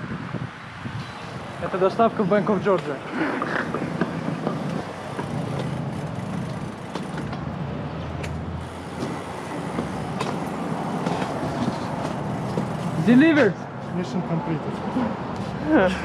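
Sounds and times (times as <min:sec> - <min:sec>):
city street traffic: 0:00.0 - 0:16.0
passing vehicle engine hum: 0:00.8 - 0:16.0.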